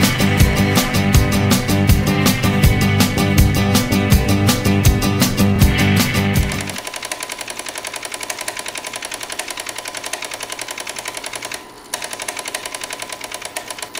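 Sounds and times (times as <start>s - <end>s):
rapid mechanical clattering: 6.4s - 13.9s.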